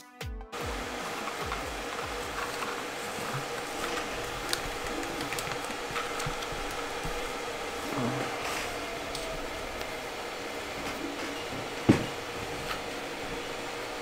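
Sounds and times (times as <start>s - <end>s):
room hiss: 0.6s - 14.0s
plastic face mask clicks and rustles: 3.5s - 7.3s.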